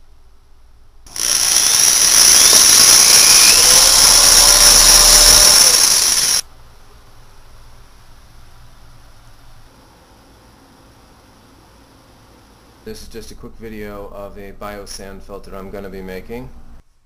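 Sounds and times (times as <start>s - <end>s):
electric drill whining: 1.1s - 6.4s.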